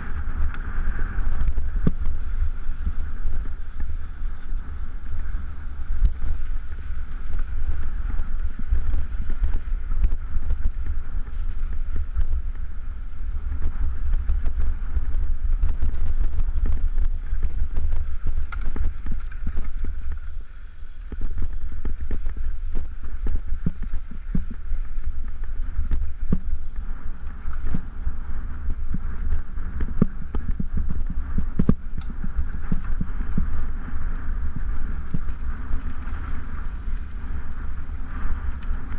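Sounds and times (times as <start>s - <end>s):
bike clattering over bumps: 0.0s - 27.9s
wind buffeting microphone: 0.0s - 38.9s.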